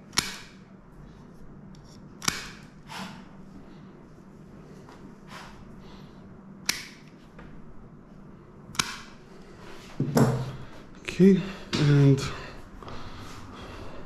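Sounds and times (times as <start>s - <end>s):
nail clippers clicking: 0.1s - 0.5s, 2.2s - 2.7s, 6.6s - 7.1s, 8.7s - 9.1s.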